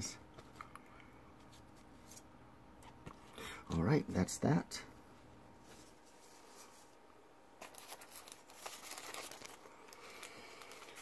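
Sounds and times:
paper and card packaging crinkling: 7.6s - 11.0s.

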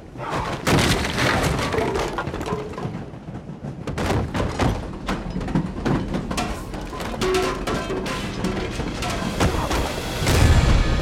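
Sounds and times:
bodies thudding into walls: 0.2s - 2.5s
wooden panelling splintering: 0.2s - 3.1s.

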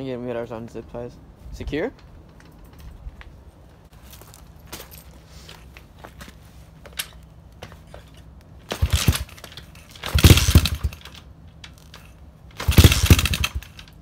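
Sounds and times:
motorbike engine sputtering: 8.6s - 14.0s.

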